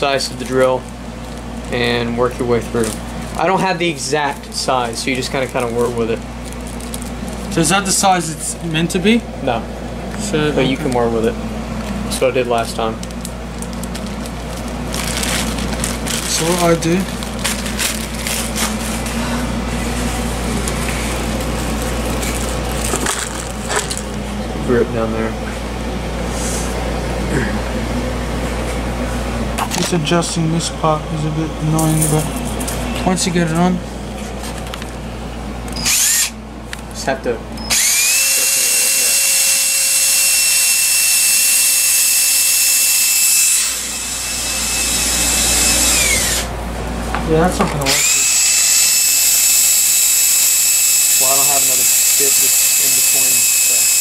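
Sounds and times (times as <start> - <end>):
low hum and hiss: 0.0 - 37.9
cordless drill motor whining: 35.7 - 36.4, 37.6 - 46.5, 47.8 - 54.0
drill bit rubbing hiss: 47.9 - 54.0.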